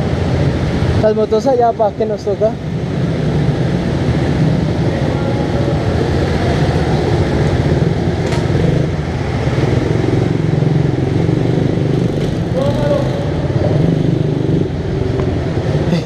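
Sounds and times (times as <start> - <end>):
minibike engine running: 4.3 - 16.0.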